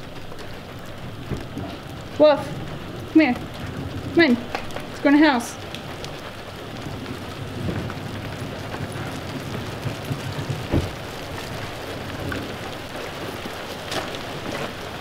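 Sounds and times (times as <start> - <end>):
steady rain: 0.0 - 15.0
sharp knocks: 10.4 - 11.0.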